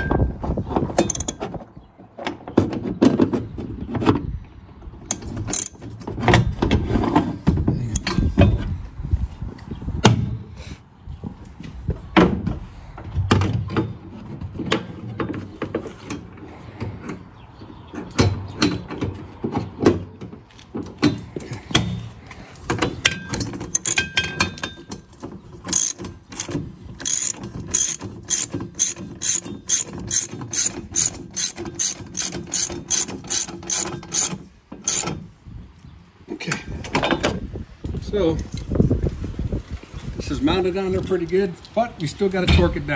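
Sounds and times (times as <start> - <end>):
ratchet wrench clicking: 1.1 - 1.4, 5.1 - 5.8, 23.7 - 24.7, 25.7 - 35.1.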